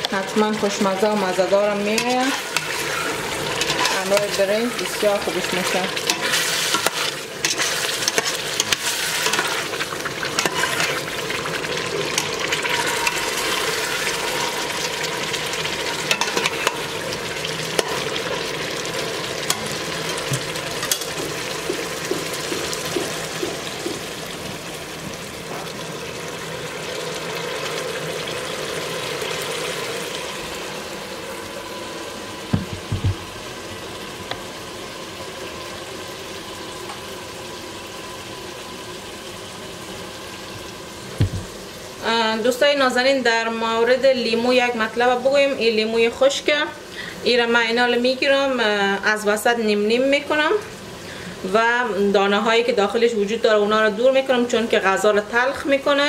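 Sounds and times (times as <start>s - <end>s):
stew sizzling and bubbling: 0.0s - 56.0s
metal spoon scraping pot: 1.9s - 9.7s.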